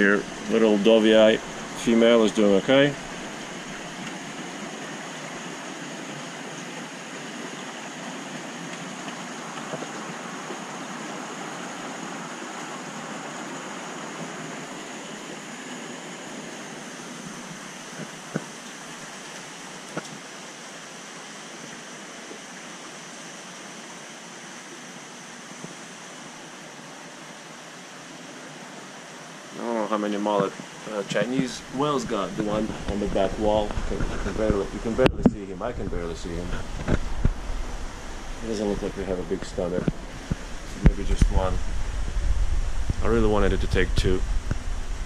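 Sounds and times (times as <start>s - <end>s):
aquarium water rushing and bubbling: 0.0s - 45.0s.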